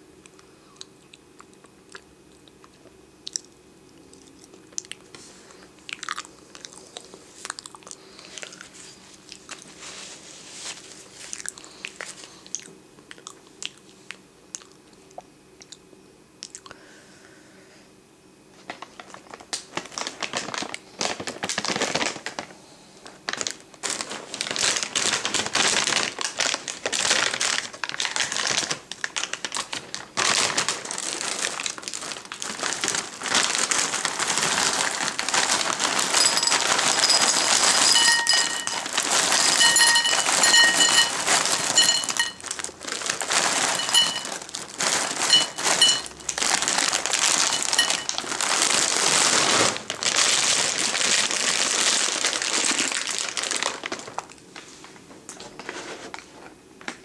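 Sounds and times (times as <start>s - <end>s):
plastic bag crinkling: 18.6s - 56.2s
cereal pouring into glass bowl: 34.3s - 49.5s
glass bowl pinging: 36.2s - 42.4s, 43.8s - 44.3s, 45.3s - 46.1s.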